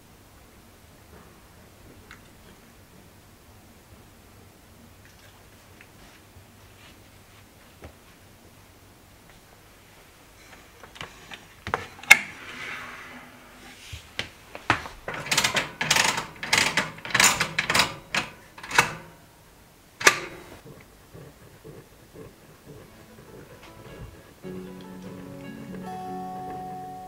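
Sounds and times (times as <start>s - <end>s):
heater clicks and rattles: 14.2s - 19.3s, 20.0s - 21.0s.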